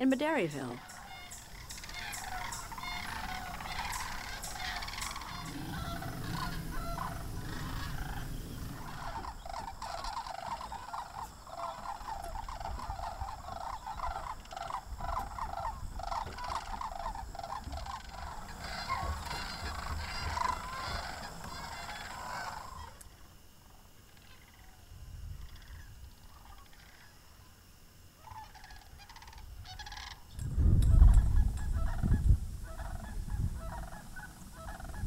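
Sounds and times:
flock of cranes calling: 0:00.2 - 0:23.4, 0:24.0 - 0:27.4, 0:28.2 - 0:35.0.

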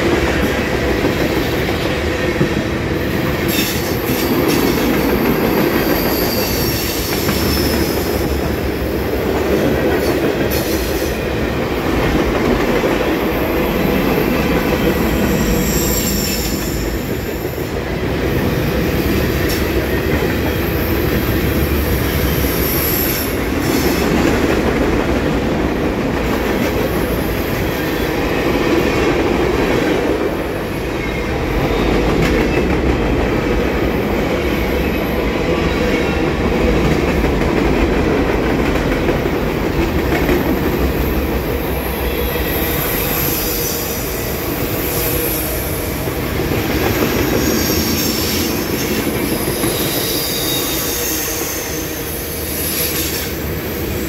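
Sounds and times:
train wheels rumbling: 0:00.0 - 0:54.0
high-pitched wheel squeals: 0:05.7 - 0:08.2, 0:15.2 - 0:17.0.

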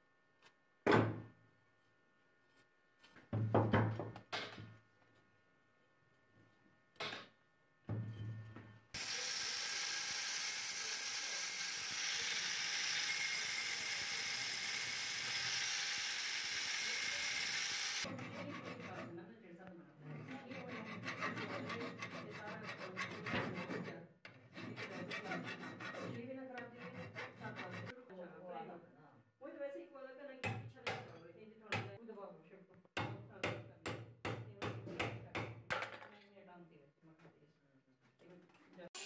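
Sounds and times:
angle grinder grinding steel: 0:09.0 - 0:19.0
hand file rasping on metal: 0:16.6 - 0:19.2, 0:20.2 - 0:28.0.

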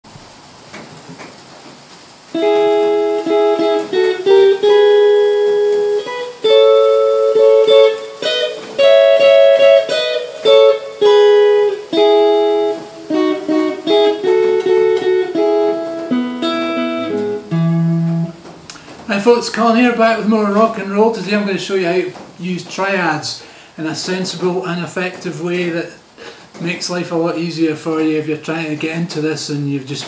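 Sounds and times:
clean electric guitar chords: 0:02.3 - 0:18.9.

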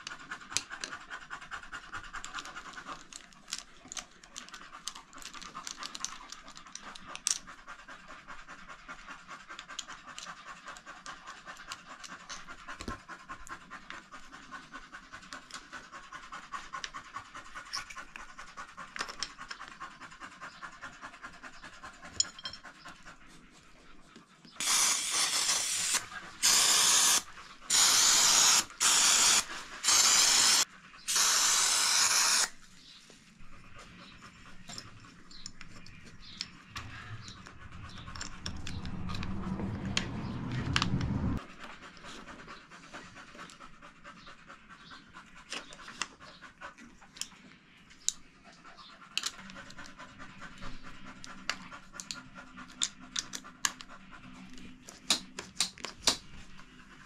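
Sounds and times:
dog panting: 0:00.0 - 0:31.1, 0:32.3 - 0:55.4, 0:56.2 - 0:57.0
loud hissing blasts: 0:24.6 - 0:32.5.

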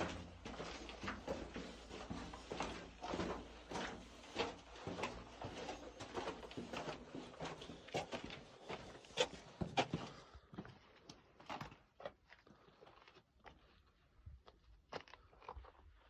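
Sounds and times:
footsteps on gravel: 0:00.0 - 0:10.8.

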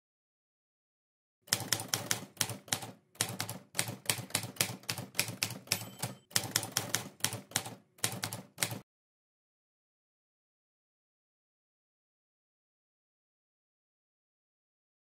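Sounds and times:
typewriter keys clacking: 0:01.5 - 0:08.8.

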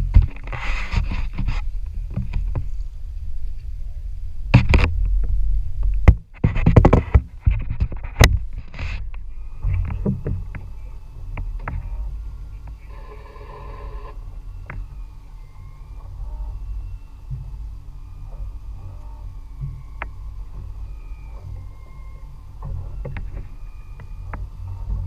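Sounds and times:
low rumble of wind and boat: 0:00.0 - 0:25.0
sharp knocks and rattles: 0:06.0 - 0:08.9.

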